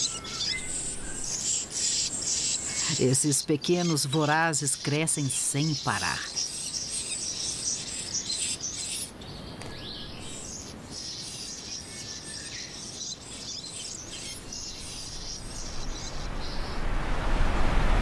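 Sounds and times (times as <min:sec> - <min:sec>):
nestlings chirping: 0:00.0 - 0:16.8
low rumble: 0:14.5 - 0:18.0.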